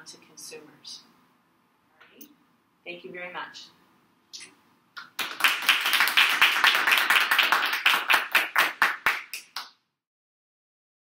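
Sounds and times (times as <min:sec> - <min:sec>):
audience applauding: 0:05.0 - 0:09.6.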